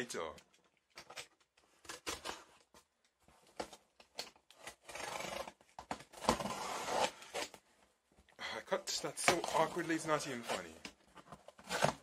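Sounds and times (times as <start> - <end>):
box packaging clicks and scrapes: 1.0 - 7.6, 9.0 - 12.0.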